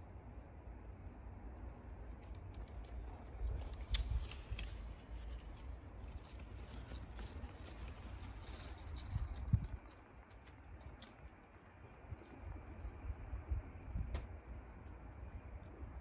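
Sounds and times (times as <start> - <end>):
wind rumble on microphone: 1.3 - 16.0
faint clicks and rustles: 1.5 - 15.9.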